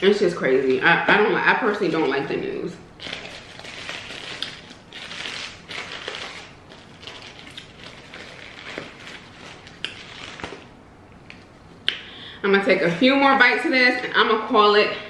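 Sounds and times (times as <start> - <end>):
paper wrapper crinkling: 3.0 - 10.7.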